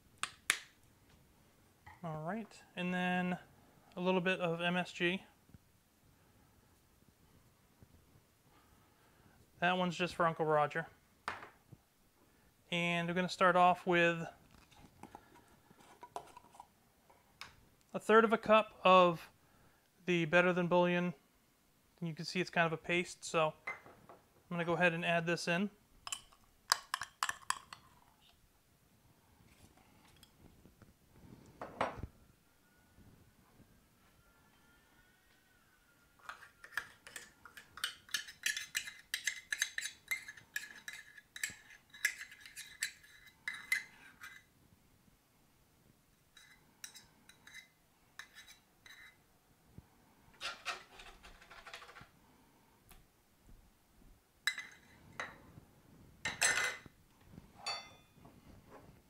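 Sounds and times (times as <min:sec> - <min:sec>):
spoon clinking metal cup: 0:26.1 - 0:27.8
utensil scraping a container: 0:36.2 - 0:44.5.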